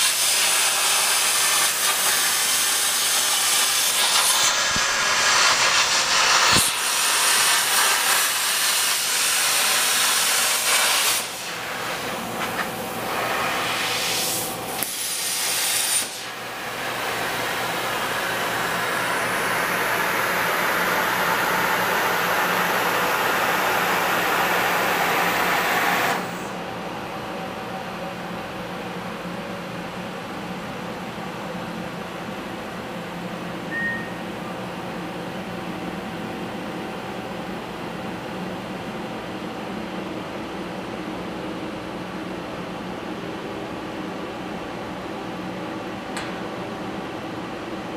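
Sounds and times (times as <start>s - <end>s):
workshop tool hissing: 0.0s - 26.6s.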